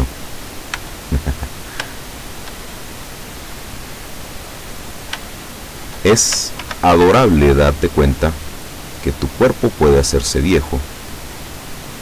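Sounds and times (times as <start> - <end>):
steady noise floor hiss: 0.0 - 12.0
faint clicks: 5.1 - 5.3, 6.2 - 6.8.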